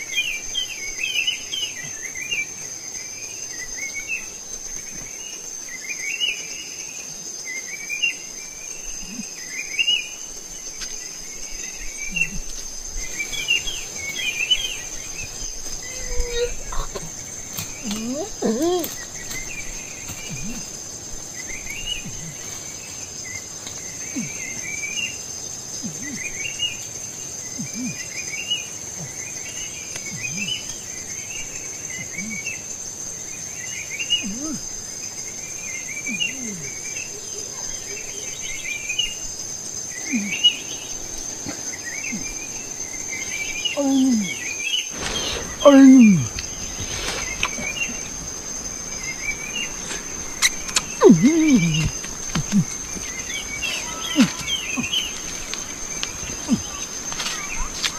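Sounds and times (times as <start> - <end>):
bird chirping: 0.0 - 57.9
high-pitched insect drone: 41.7 - 57.9
rising-and-falling bird calls: 41.8 - 57.9
louder falling calls: 44.9 - 57.9.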